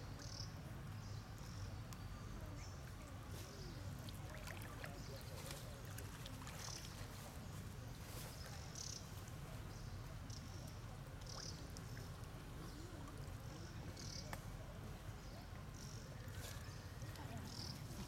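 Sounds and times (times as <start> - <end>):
water splashing from swimming animals: 3.8 - 7.4.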